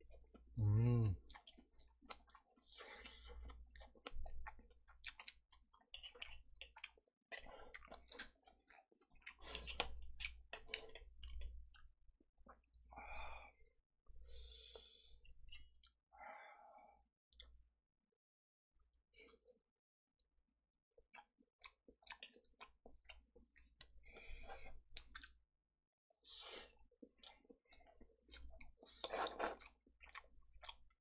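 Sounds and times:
chewing food: 0.1s - 12.8s, 14.3s - 16.0s, 21.0s - 25.4s, 26.3s - 31.0s
wet mouth clicks: 9.3s - 11.6s.

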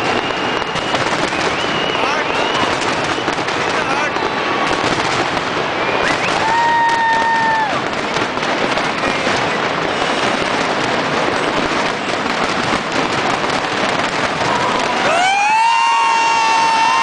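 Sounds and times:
crowd whooping and cheering: 0.0s - 8.0s, 14.4s - 17.0s
fireworks crackles and bangs: 0.0s - 17.0s.

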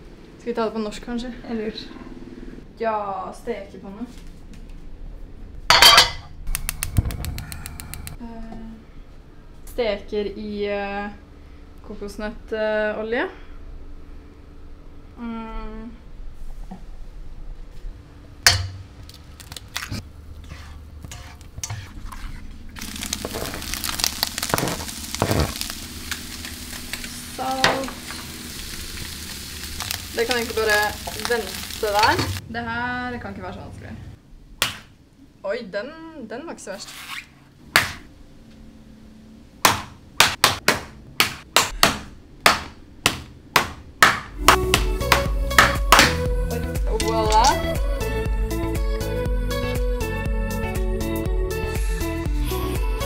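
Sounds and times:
spatula scraping a pan: 20.4s - 22.4s
eggs sizzling in a frying pan: 22.7s - 32.4s.

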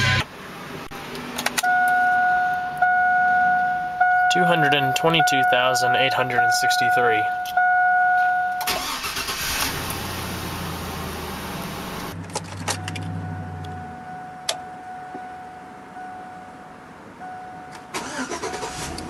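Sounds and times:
car engine running: 0.0s - 16.5s
dashboard warning chime: 1.6s - 9.3s, 12.7s - 18.8s
starter cranking engine: 8.6s - 10.0s, 17.9s - 19.0s.

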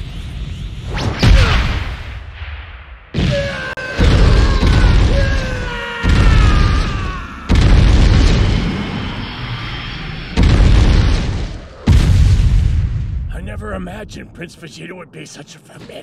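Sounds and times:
heavy impact booms: 1.2s - 9.2s, 10.3s - 14.0s.

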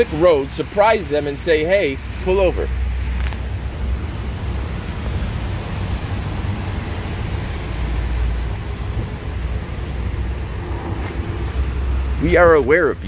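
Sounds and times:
tyre hiss on wet road: 0.0s - 12.2s
traffic engine rumble: 0.0s - 13.0s.

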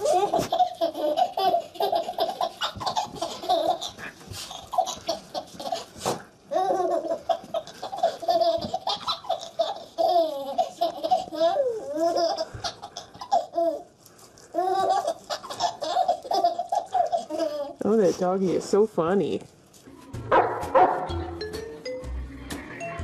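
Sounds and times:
baby laughing: 0.0s - 17.8s.

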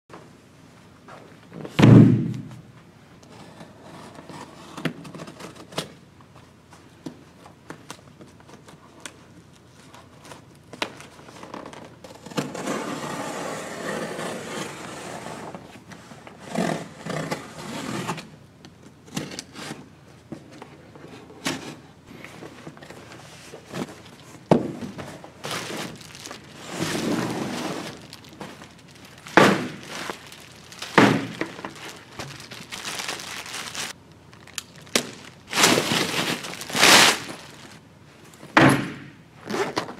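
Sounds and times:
plastic wrap crinkling: 23.6s - 37.9s.

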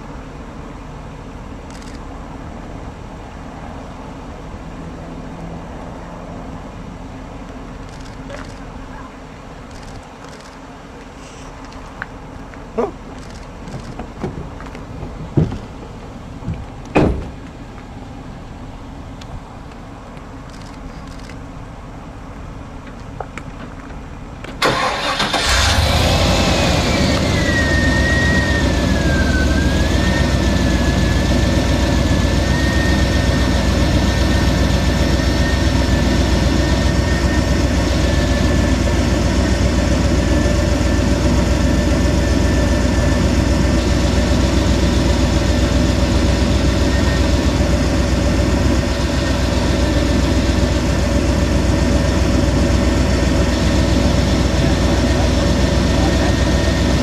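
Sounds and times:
engine droning with high whine: 0.0s - 57.0s
sharp knocks: 17.0s - 17.4s.

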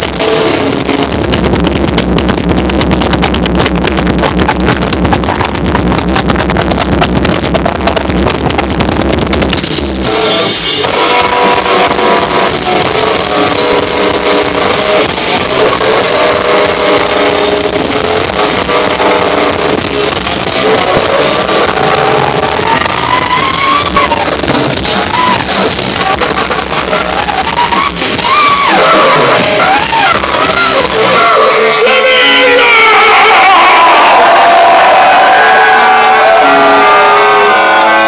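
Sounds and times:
live rock band playing: 0.0s - 33.5s
baritone saxophone: 10.0s - 31.8s.

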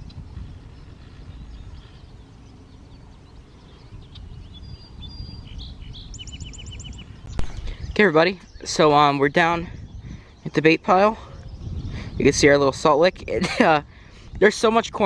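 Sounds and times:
bird trill: 0.0s - 10.7s
steady low rumble: 0.0s - 14.1s
songbirds chirping: 0.0s - 15.0s.

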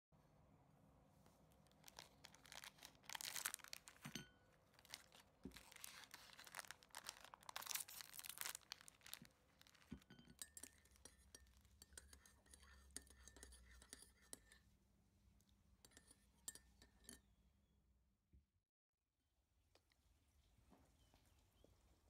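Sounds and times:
plastic wrapper crinkling and tearing: 1.7s - 4.1s, 4.7s - 10.0s
cookies tapping on china saucer: 2.0s - 14.6s.

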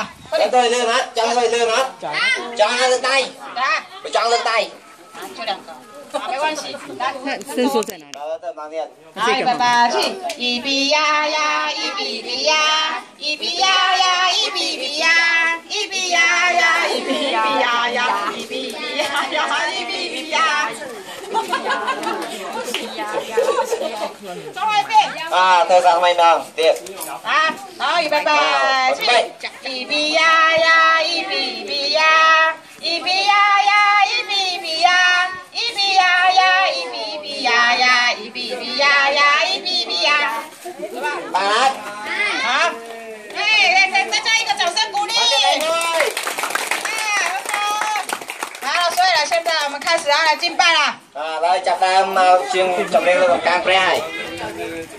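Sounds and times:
children singing: 9.8s - 20.9s, 28.2s - 40.6s.

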